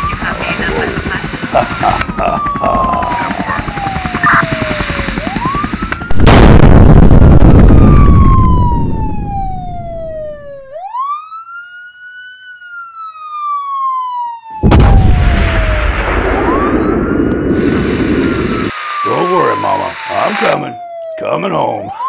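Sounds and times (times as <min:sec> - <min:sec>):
police siren wailing: 0:00.0 - 0:22.0
loud explosion: 0:06.1 - 0:10.1, 0:14.6 - 0:18.6.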